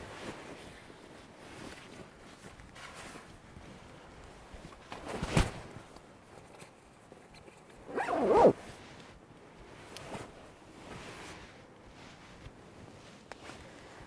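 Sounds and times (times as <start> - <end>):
faint rustling: 7.4 - 14.0
zipper pulled: 7.8 - 8.6.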